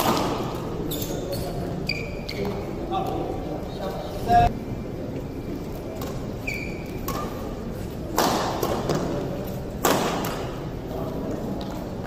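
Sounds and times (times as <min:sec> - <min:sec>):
racket hitting shuttlecock: 0:00.0 - 0:00.7, 0:06.9 - 0:07.5, 0:08.1 - 0:10.6
high squeak: 0:00.9 - 0:02.5, 0:06.4 - 0:07.1.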